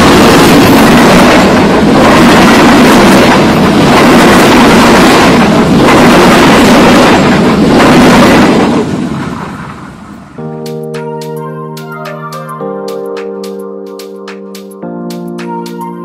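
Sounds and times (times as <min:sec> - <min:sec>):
train wheels rumbling on rails: 0:00.0 - 0:10.4.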